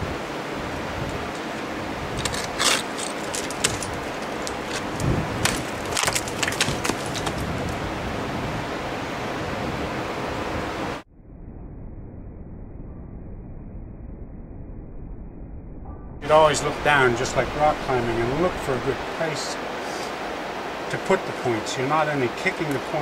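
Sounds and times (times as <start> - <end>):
steady rushing noise: 0.0 - 11.1, 16.2 - 23.0
ice axes striking ice: 2.2 - 7.8.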